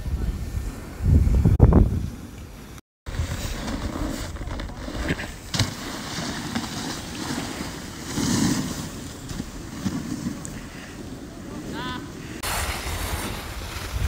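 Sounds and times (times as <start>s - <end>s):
wind buffeting microphone: 0.0s - 4.5s, 12.1s - 14.0s.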